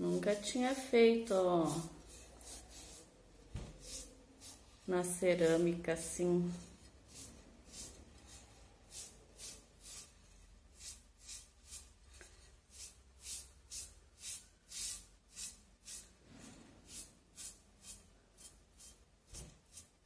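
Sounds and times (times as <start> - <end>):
scratchy brush strokes: 0.0 - 20.0.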